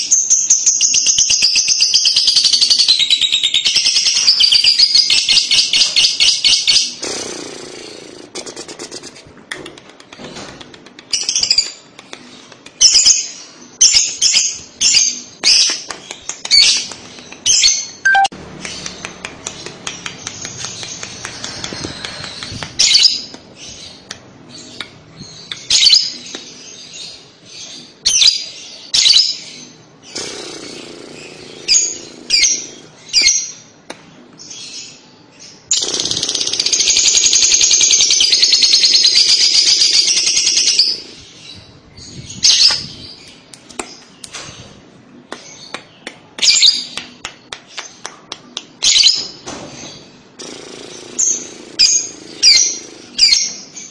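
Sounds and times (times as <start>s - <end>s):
bird chattering trill: 17.5s - 18.9s
bird shrill chirps: 18.0s - 18.3s.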